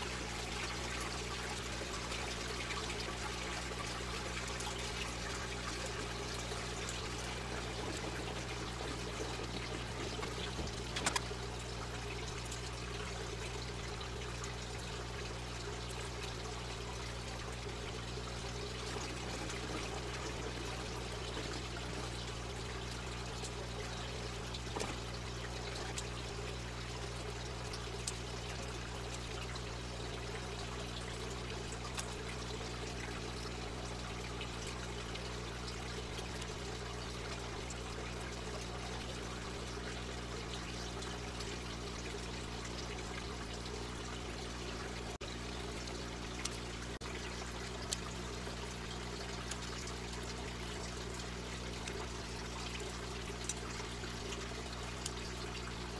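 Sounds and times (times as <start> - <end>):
low steady hum: 0.0 - 55.9
water trickling: 0.0 - 55.9
short clicks: 10.2 - 11.4.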